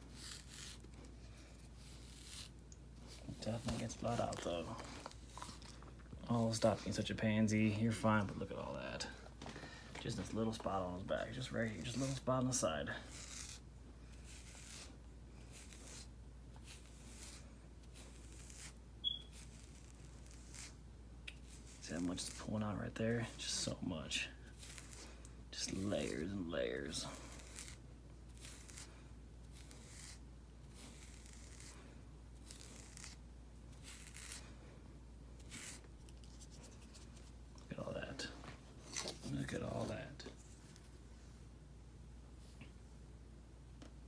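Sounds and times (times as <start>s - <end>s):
brush raking through fur: 0.0s - 5.6s, 10.1s - 20.8s, 21.4s - 23.8s, 24.5s - 28.9s, 29.5s - 31.8s
brief high squeak: 19.0s - 19.4s.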